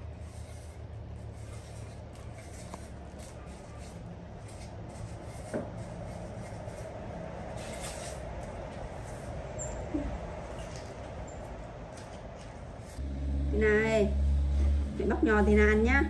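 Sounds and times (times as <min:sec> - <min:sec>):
steady low rumble: 0:05.8 - 0:16.0.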